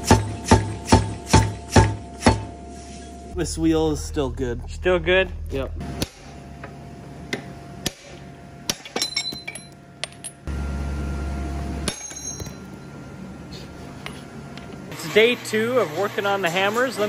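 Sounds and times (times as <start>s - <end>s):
low hum: 0.0s - 15.0s
hammer clinking on metal: 8.7s - 10.5s, 11.9s - 12.7s.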